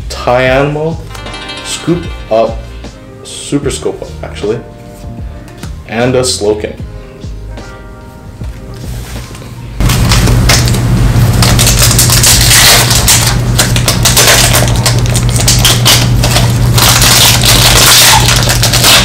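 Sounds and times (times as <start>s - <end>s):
foil pack crinkling and tearing: 9.8s - 19.0s.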